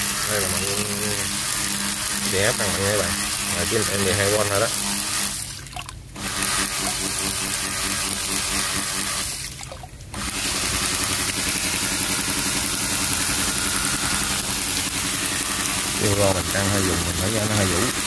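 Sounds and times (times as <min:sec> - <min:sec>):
electric motor whine: 0:00.0 - 0:05.5, 0:06.2 - 0:09.5, 0:10.2 - 0:18.0
water splashing: 0:05.5 - 0:06.0, 0:09.4 - 0:10.0.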